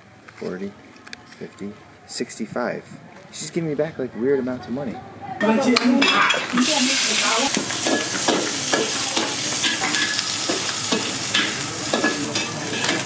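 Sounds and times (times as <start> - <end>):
kitchen utensils clattering: 5.4 - 13.0
food frying and sizzling: 6.0 - 13.0.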